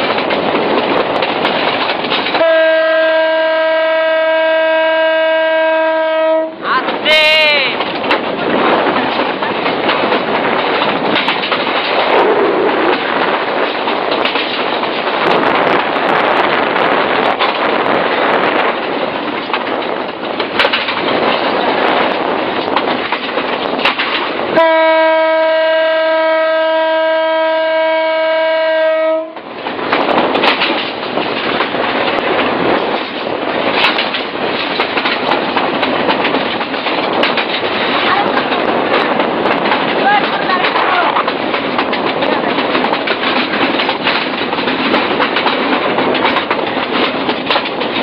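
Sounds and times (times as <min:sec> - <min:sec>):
wheel and rail noise: 0:00.0 - 0:48.0
train horn blast: 0:02.4 - 0:06.6, 0:24.6 - 0:29.4.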